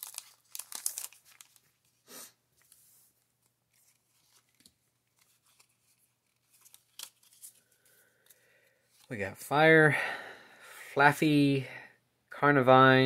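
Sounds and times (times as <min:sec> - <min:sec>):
foil wrapper crinkling: 0:00.0 - 0:02.0
handling trading cards: 0:00.0 - 0:02.0, 0:02.6 - 0:09.2.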